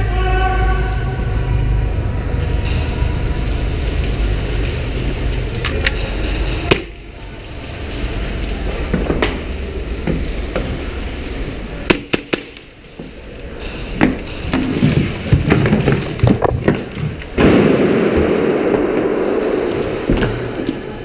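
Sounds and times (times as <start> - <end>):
steady low rumble: 0.0 - 11.9.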